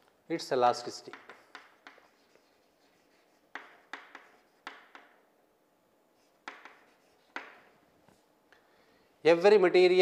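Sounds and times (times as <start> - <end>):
chalk tapping on blackboard: 1.0 - 5.3, 6.2 - 7.7.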